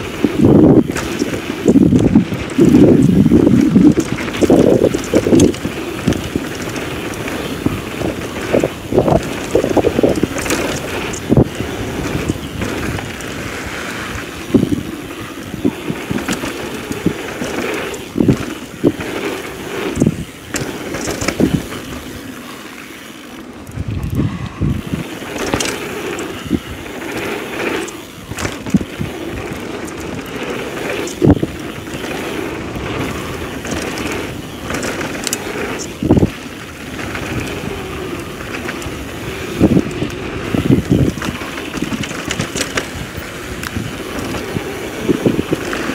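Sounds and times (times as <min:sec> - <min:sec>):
wind on microphone: 0:00.0 - 0:22.0, 0:23.6 - 0:45.9
bike knocking and rattling: 0:00.0 - 0:45.9
bike tyre rumble on dirt: 0:00.0 - 0:45.9.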